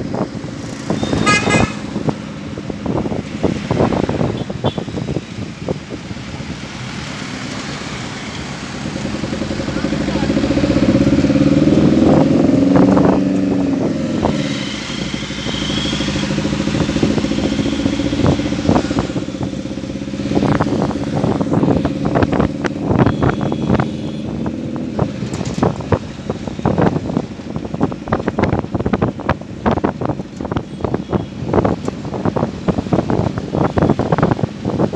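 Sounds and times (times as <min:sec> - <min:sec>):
wind buffeting microphone: 0:00.0 - 0:07.4, 0:08.6 - 0:34.9.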